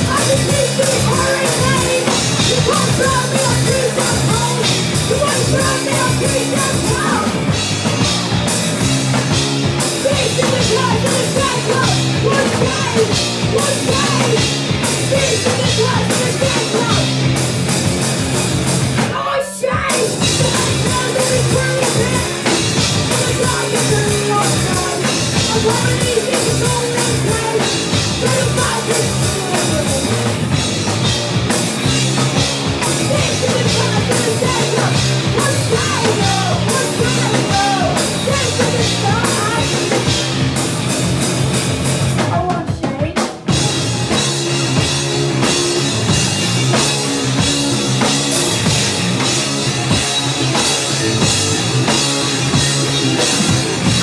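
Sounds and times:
woman singing: 0:00.0 - 0:07.4, 0:10.0 - 0:17.1, 0:19.1 - 0:30.2, 0:32.8 - 0:40.1, 0:42.2 - 0:43.4
bass guitar: 0:00.0 - 0:54.0
distorted electric guitars: 0:00.0 - 0:54.0
drum kit: 0:00.0 - 0:54.0.

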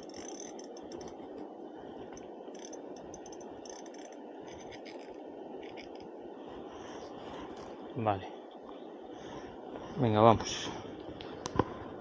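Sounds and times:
fishing reel clicking and rattling: 0:00.0 - 0:01.2, 0:02.2 - 0:06.1.

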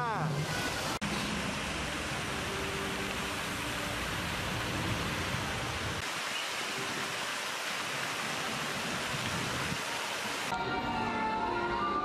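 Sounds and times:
fountain water splashing: 0:00.5 - 0:10.5.

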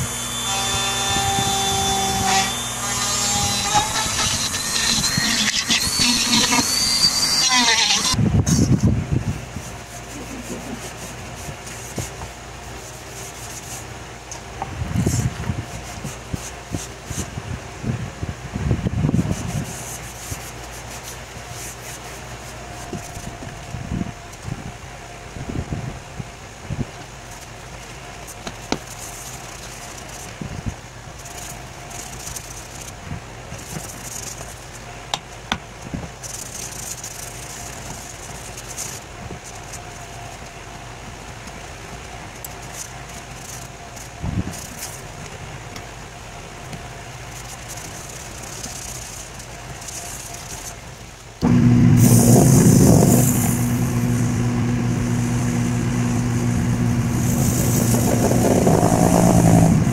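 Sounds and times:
applicator rubbing spinning bowl: 0:00.0 - 0:08.2, 0:51.4 - 0:59.9
wood lathe humming: 0:00.0 - 0:08.2, 0:51.4 - 0:59.9
rag swishing on spinning wood: 0:08.8 - 0:13.9, 0:19.1 - 0:23.3, 0:47.3 - 0:59.9.

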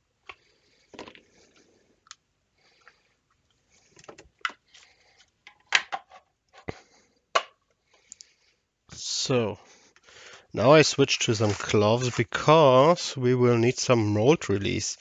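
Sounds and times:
silicone mold rustling: 0:10.7 - 0:12.4.

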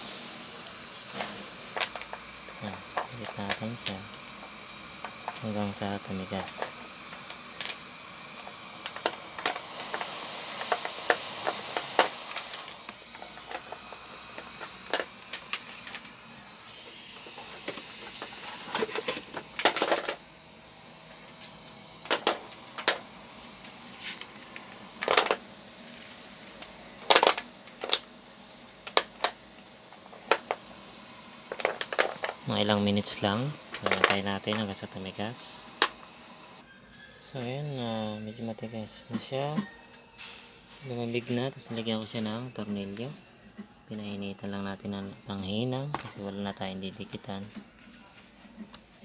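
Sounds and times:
heat gun blowing: 0:00.0 - 0:36.6.

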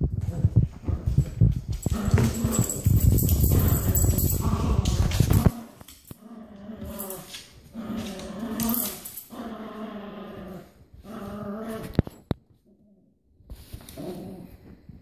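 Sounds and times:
dogs growling: 0:01.8 - 0:12.2, 0:13.9 - 0:14.8.

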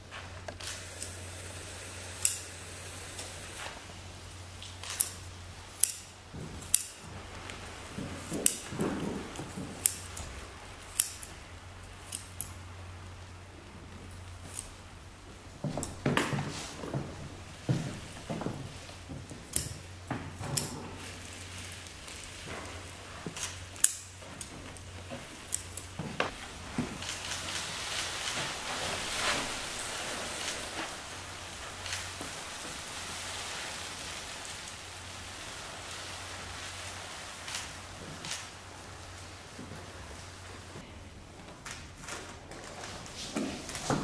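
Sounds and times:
salt spilling onto wooden floor: 0:21.0 - 0:40.8.

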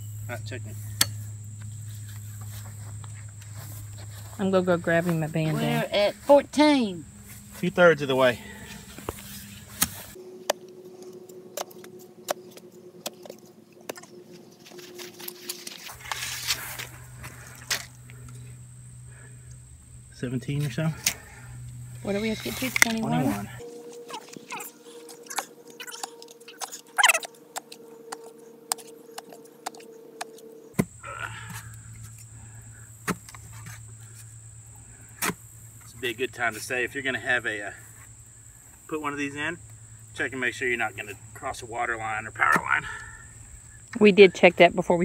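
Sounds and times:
faint steady hum: 0:00.0 - 0:45.0
digger blades scraping in clay: 0:15.5 - 0:17.9.

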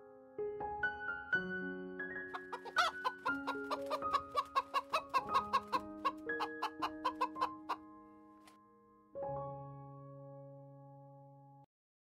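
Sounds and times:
soft piano music: 0:00.0 - 0:11.7
hen clucking: 0:02.3 - 0:07.8.

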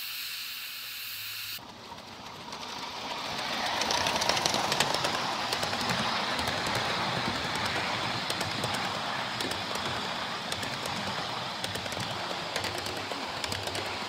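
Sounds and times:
steam hissing: 0:00.0 - 0:01.6
locomotive rushing past: 0:01.6 - 0:14.0
wheels clicking over track: 0:01.6 - 0:14.0.

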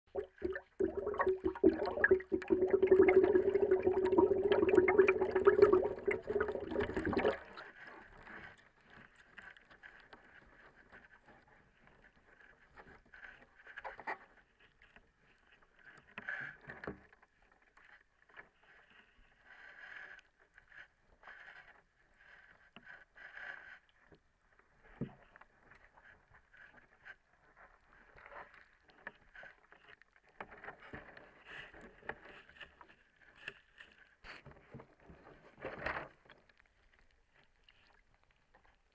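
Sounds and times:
dense underwater crackling: 0:00.1 - 0:07.8
soft rustles and scrapes: 0:03.1 - 0:38.9.

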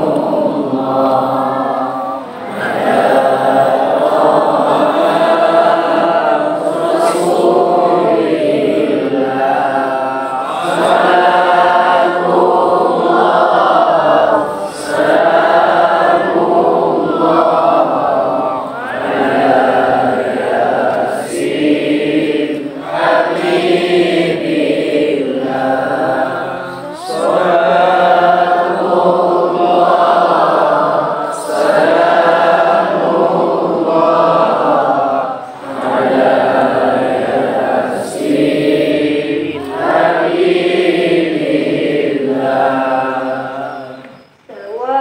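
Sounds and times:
group singing in unison: 0:00.0 - 0:45.0.

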